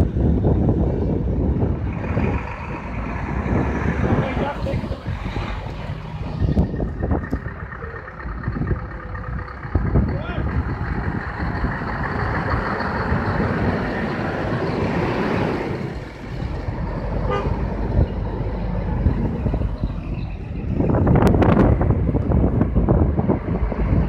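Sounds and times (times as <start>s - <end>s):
diesel truck engines rumbling: 0.0s - 24.0s
wind buffeting microphone: 0.0s - 24.0s
truck horn toot: 17.2s - 17.8s.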